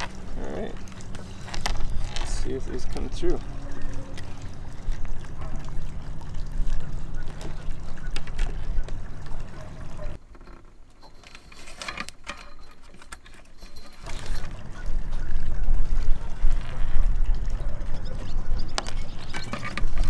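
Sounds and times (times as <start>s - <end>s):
wires rustling through a hole: 0.0s - 3.4s, 4.1s - 20.0s
low outdoor rumble: 0.0s - 11.0s.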